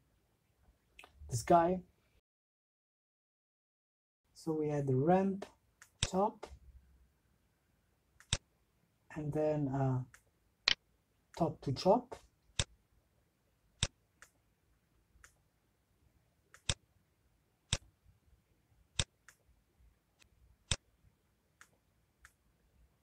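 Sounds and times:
computer mouse clicking: 0:08.2 - 0:08.4, 0:16.5 - 0:16.8.

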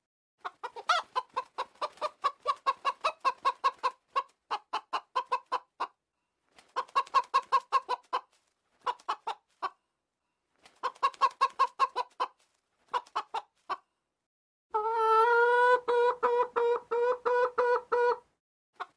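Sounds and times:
chicken clucking: 0:00.4 - 0:06.0, 0:06.6 - 0:09.8, 0:10.7 - 0:13.9, 0:14.7 - 0:18.9
chicken pulsing call: 0:14.7 - 0:18.2.

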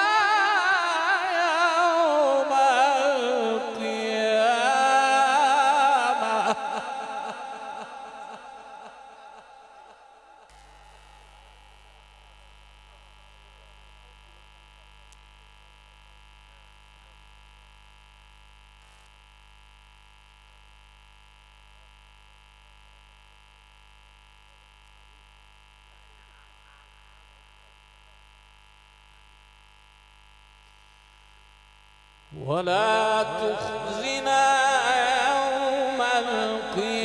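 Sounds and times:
mains hum from sound system: 0:00.0 - 0:37.0
faint click: 0:15.0 - 0:15.3.

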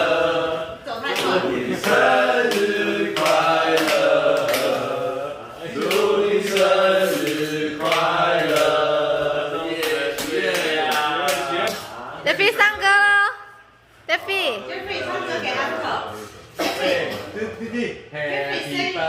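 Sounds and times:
group chanting in unison: 0:00.0 - 0:12.4
hands clapping a beat: 0:01.1 - 0:04.9, 0:05.7 - 0:09.1, 0:09.7 - 0:11.9.

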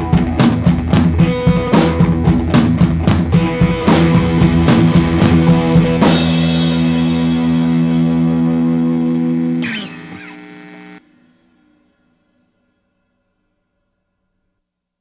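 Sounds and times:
rock music with guitar and drums: 0:00.0 - 0:11.4
guitar chord ringing: 0:03.4 - 0:12.8.

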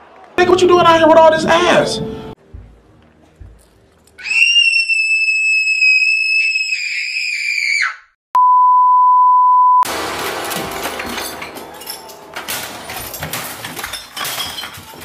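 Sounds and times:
high-pitched scream: 0:04.2 - 0:08.1.

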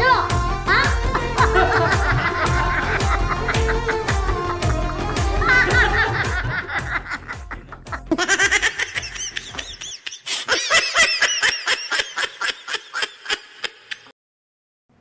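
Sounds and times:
background music: 0:00.0 - 0:09.9
hearty laughter: 0:01.1 - 0:14.1.

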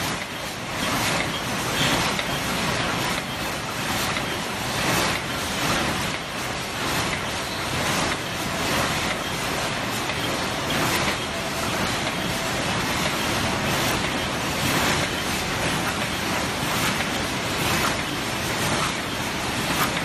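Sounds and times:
machine clattering: 0:00.0 - 0:20.0.

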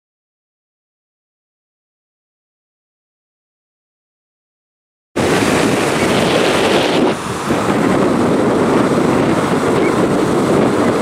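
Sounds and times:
breaking surf: 0:05.2 - 0:11.0
wind buffeting microphone: 0:05.2 - 0:11.0.

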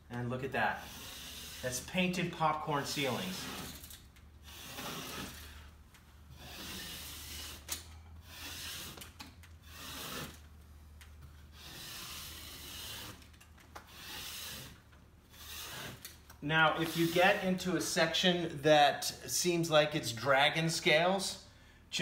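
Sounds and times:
scraper scraping ceiling texture: 0:00.4 - 0:10.5, 0:11.2 - 0:18.1.

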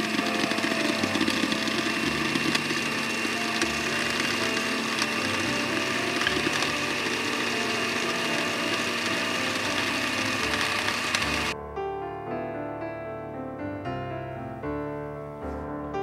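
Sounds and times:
electric blender grinding: 0:00.0 - 0:11.6.

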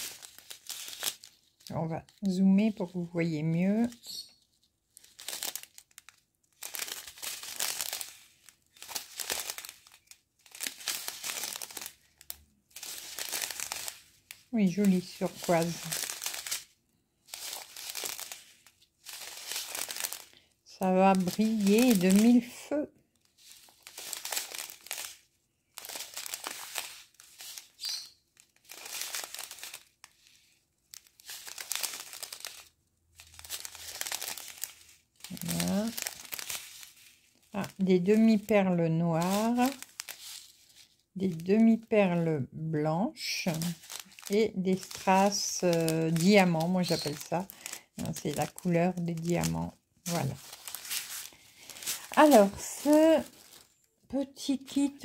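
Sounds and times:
plastic bags crinkling: 0:00.0 - 0:42.3, 0:43.2 - 0:55.0.

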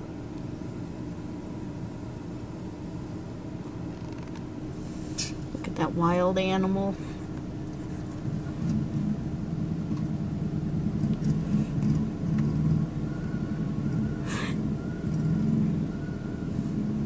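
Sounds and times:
car engine and tyre rumble: 0:00.0 - 0:17.0
brief hiss: 0:04.8 - 0:05.4.

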